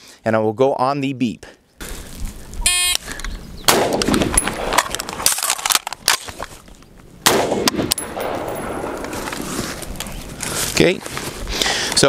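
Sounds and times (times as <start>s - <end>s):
rifle shot: 3.7s - 5.5s, 7.2s - 9.2s
metallic clicks of magazine reload: 4.0s - 6.5s.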